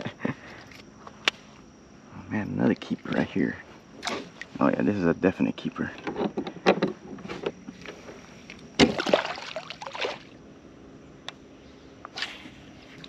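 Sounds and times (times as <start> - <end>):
water splashing: 8.8 - 10.3.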